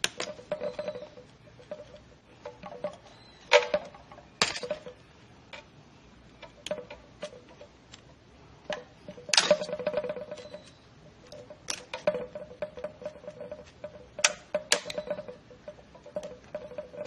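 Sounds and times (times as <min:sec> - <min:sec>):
sharp metal clicks ringing: 0:13.9 - 0:17.0.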